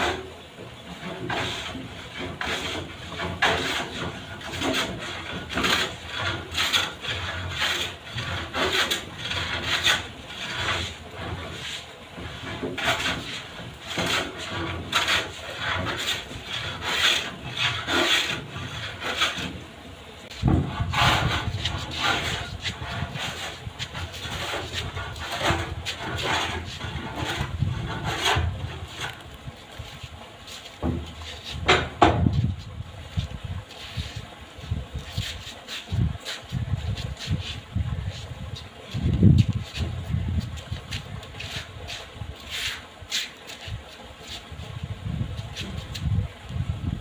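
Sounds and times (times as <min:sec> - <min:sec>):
hand plane shaving wood: 0:00.9 - 0:19.7, 0:20.3 - 0:31.6.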